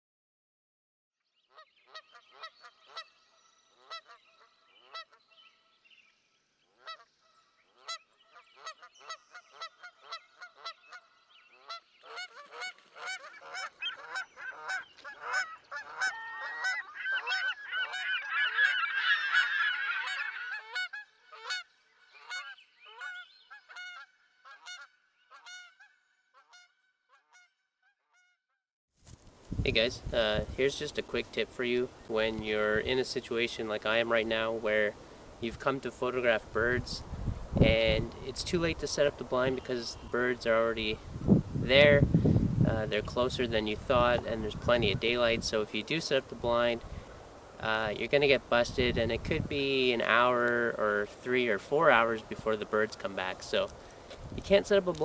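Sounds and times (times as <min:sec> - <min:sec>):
geese honking: 0:01.5 - 0:05.2, 0:06.8 - 0:27.5.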